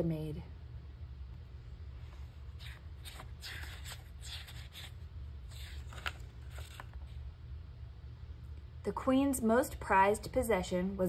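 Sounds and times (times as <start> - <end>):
book page turning: 2.1 - 7.2.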